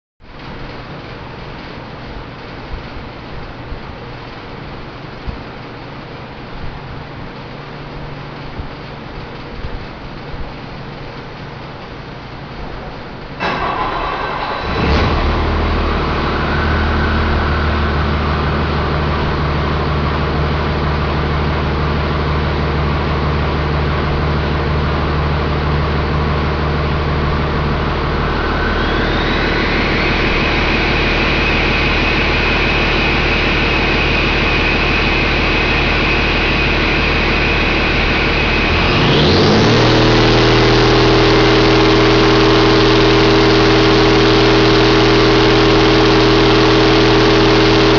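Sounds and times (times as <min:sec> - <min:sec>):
diesel engine idling and revving: 0:13.4 - 0:47.9
high whine: 0:13.4 - 0:47.9.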